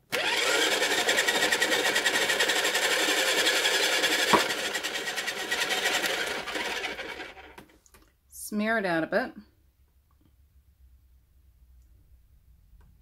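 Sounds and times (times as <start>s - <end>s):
pottery wheel buzzing: 0.1s - 7.6s.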